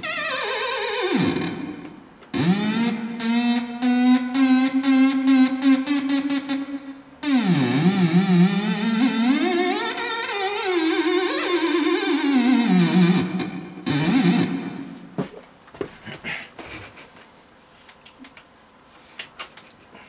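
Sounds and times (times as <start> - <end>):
theremin gliding tone: 2.4 - 15.1.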